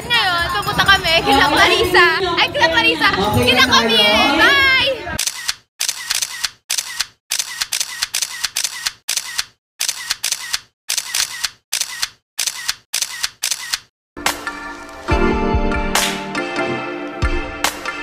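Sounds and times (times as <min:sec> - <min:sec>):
camera shutter clicks: 0:05.2 - 0:13.9
music: 0:14.2 - 0:18.0.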